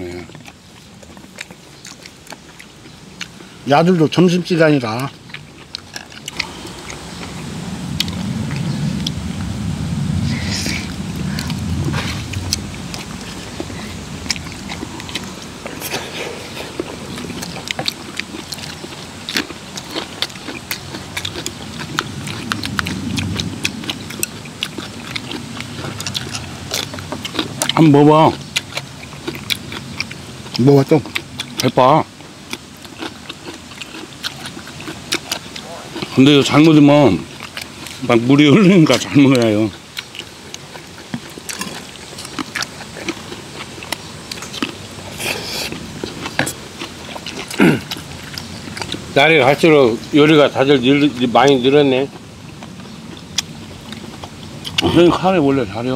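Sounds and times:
crunchy bites and chewing: 0.0 - 55.9
low rumble: 6.3 - 18.8
slurp: 10.2 - 19.1, 43.9 - 49.8.

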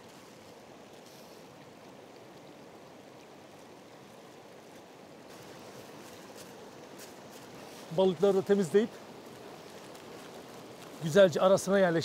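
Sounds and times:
stream flowing over rocks: 0.0 - 12.0.

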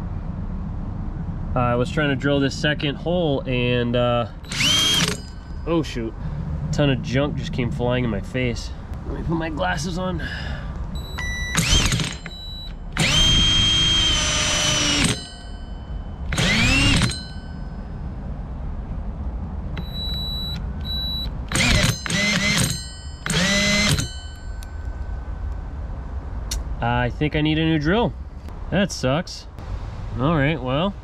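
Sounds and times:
electric drill whining: 4.4 - 5.6, 11.0 - 15.6, 16.2 - 17.4, 20.8 - 24.4.

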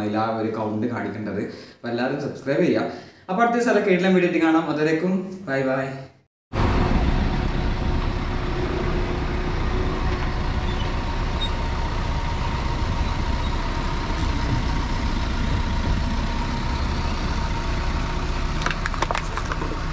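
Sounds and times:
vehicle engine idling: 6.6 - 19.9.

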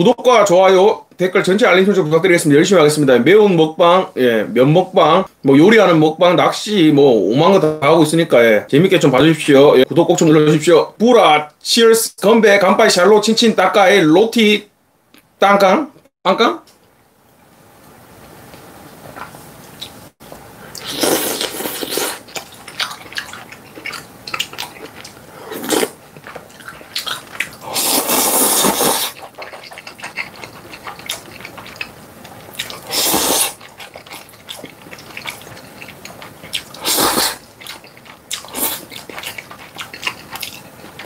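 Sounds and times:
slurping noodles: 20.7 - 31.9, 32.6 - 41.0
wet chewing: 20.7 - 41.0.

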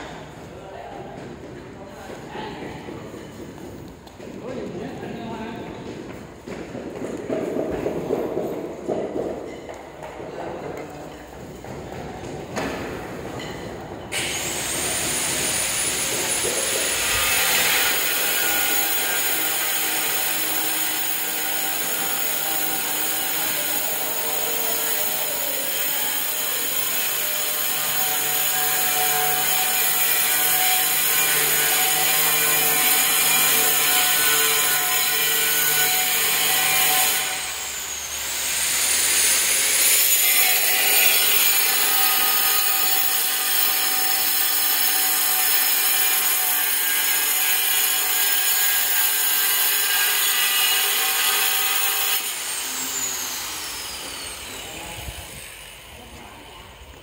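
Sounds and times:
angle grinder cutting tile: 14.1 - 56.2.

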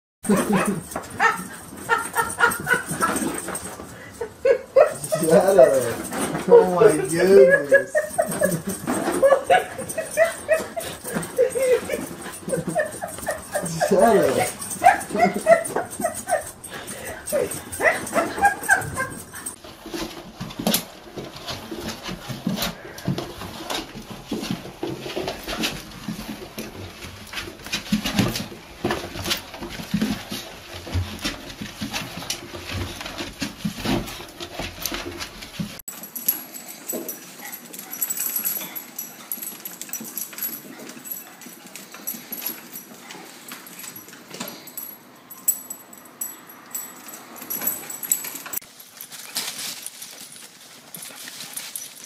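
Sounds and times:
small dogs vocalizing: 0.3 - 19.6.

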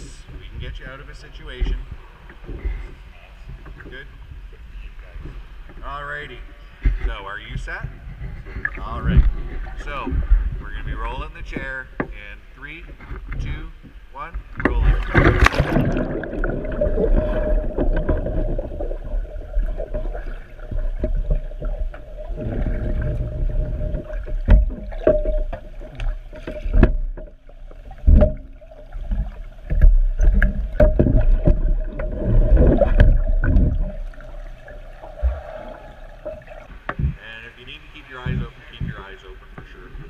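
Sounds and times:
low underwater rumble and hum: 0.0 - 40.0
underwater bubbling and sloshing: 0.0 - 40.0
sharp knocks underwater: 14.4 - 37.2, 38.2 - 39.8.

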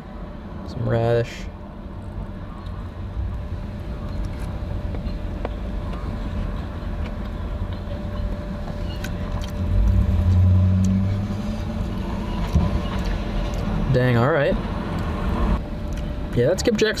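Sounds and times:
road traffic rumble: 0.0 - 17.0
vehicle passing: 9.4 - 15.6.

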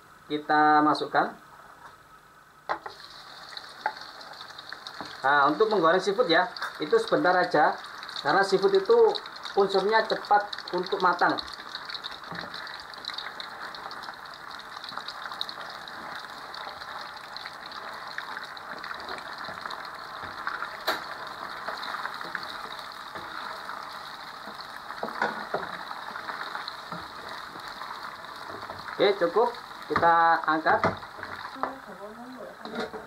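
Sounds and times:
seafood frying in hot oil: 2.7 - 33.0.

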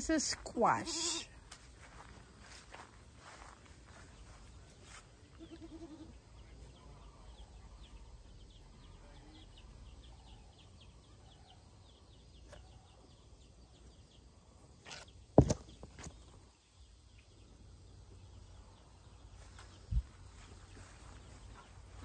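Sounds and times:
goat bleating: 5.4 - 6.2.

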